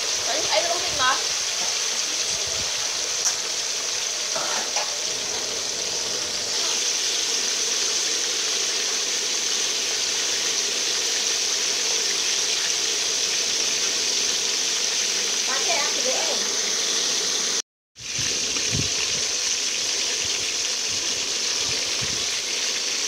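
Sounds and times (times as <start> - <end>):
fish sizzling in hot oil: 0.0 - 23.0.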